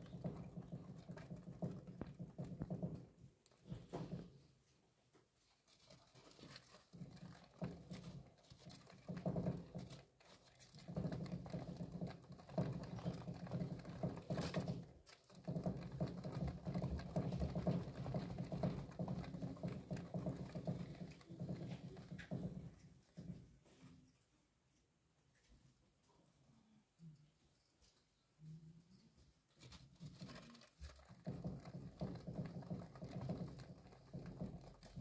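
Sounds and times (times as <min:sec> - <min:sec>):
small feet pattering on wheel: 0:05.8 - 0:22.8, 0:29.6 - 0:35.0
exercise wheel rumble: 0:06.3 - 0:22.8, 0:30.9 - 0:35.0.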